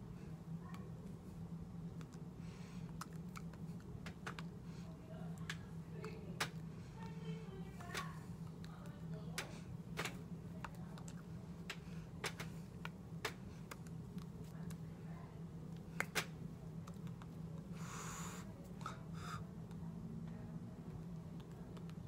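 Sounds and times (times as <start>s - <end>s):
steady low hum: 0.0s - 22.0s
hands clicking and tapping together: 3.0s - 4.5s, 5.4s - 6.6s.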